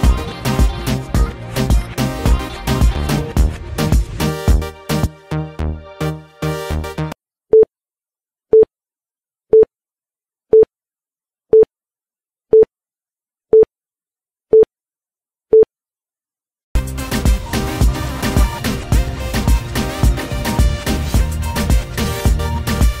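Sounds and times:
dance music: 0.0s - 7.2s, 16.8s - 23.0s.

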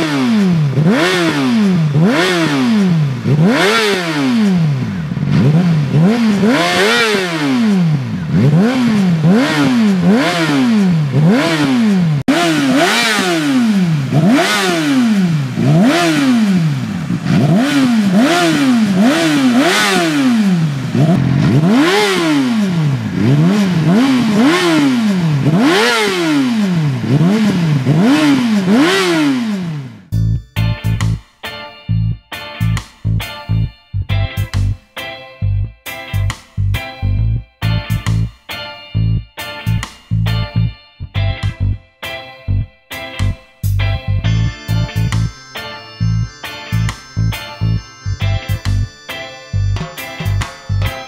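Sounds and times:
motorcycle engine revving: 0.0s - 30.1s.

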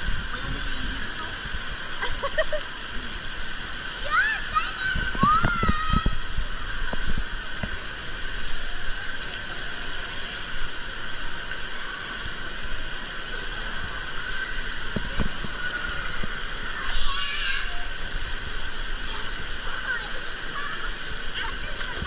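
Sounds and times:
pool water rushing: 0.0s - 22.0s
distant children's voices: 3.9s - 7.5s, 13.4s - 22.0s.

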